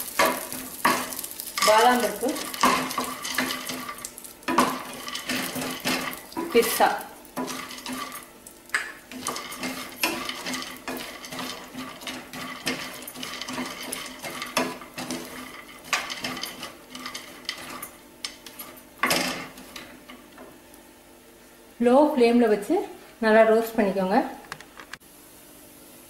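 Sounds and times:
nuts scraping in a pan: 0.0s - 20.4s.

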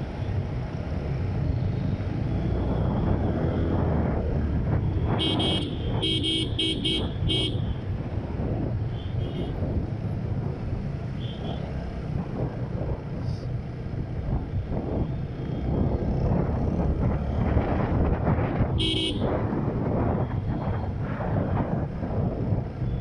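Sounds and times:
motorcycle road noise: 0.0s - 23.0s
wind on microphone: 0.3s - 10.9s, 12.0s - 23.0s
vehicle horn toot: 5.2s - 7.6s, 18.8s - 19.2s.

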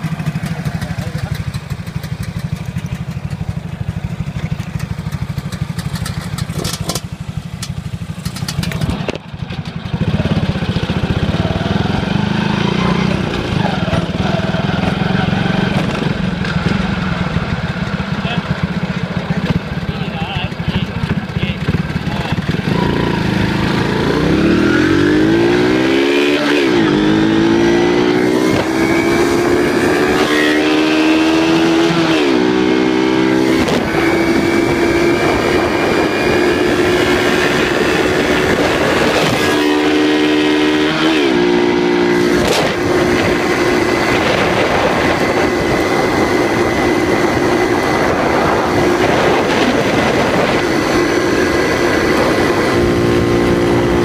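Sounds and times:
motorcycle engine revving: 0.0s - 54.0s
wind rush on microphone: 32.8s - 54.0s.

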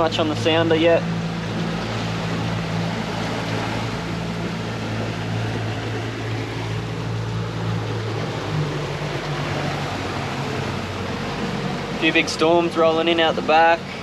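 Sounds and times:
boat motor humming: 0.0s - 14.0s
wind: 0.0s - 14.0s.

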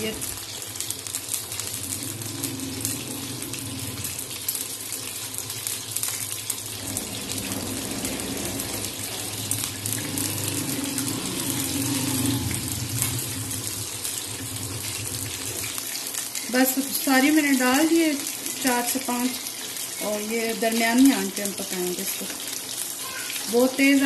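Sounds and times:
fish frying in hot oil: 0.0s - 24.0s.

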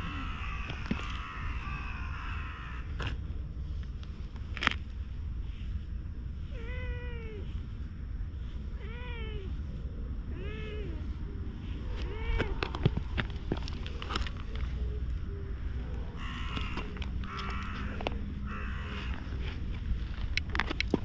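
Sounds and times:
steady low rumble: 0.0s - 21.0s
cat meowing: 6.6s - 7.5s, 8.8s - 9.5s, 12.0s - 12.6s.

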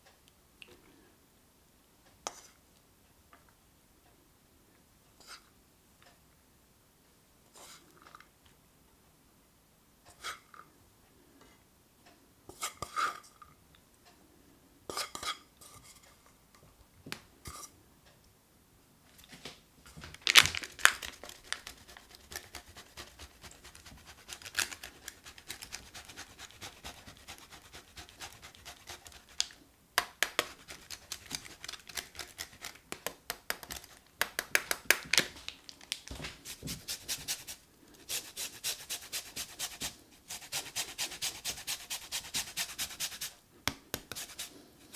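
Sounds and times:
cheese grater scraping: 21.2s - 29.4s, 36.5s - 43.3s
lemon zesting on grater: 21.3s - 29.4s, 36.8s - 43.3s.

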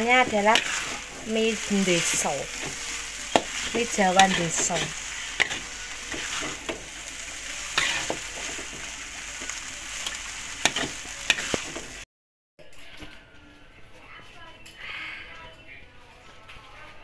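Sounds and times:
spatula scraping a wok: 0.0s - 12.0s
food sizzling: 0.0s - 12.1s.

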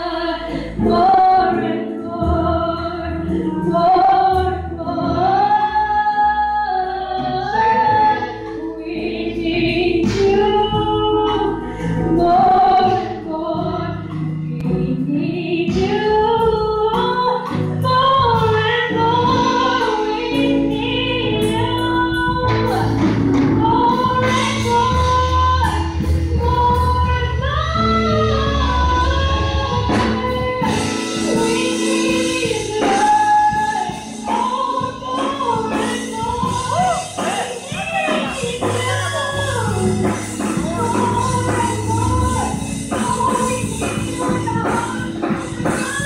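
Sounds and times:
women singing gospel: 0.0s - 46.0s.

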